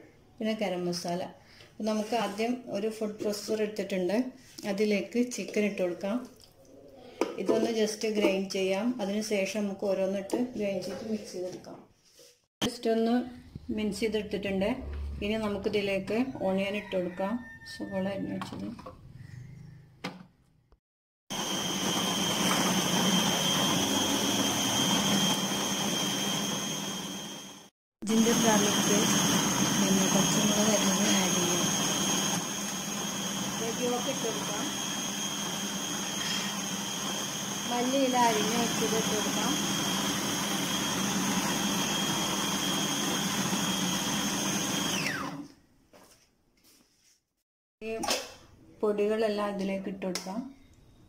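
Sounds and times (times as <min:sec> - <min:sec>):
food processor motor whining: 0:21.3 - 0:45.6.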